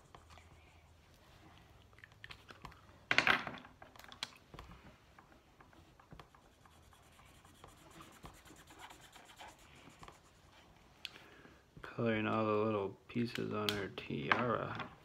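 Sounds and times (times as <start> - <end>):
markers scratching on paper: 0.0 - 1.2, 5.8 - 10.8.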